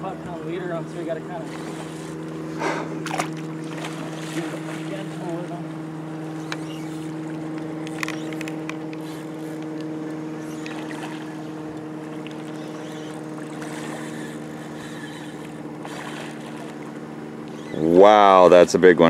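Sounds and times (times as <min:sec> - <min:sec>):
boat motor running: 0:00.0 - 0:19.0.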